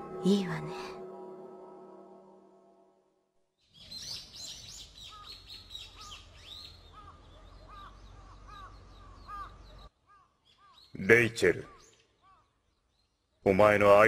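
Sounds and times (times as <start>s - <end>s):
birds chirping: 3.6s - 14.0s
crow cawing: 6.9s - 10.8s, 11.6s - 12.6s.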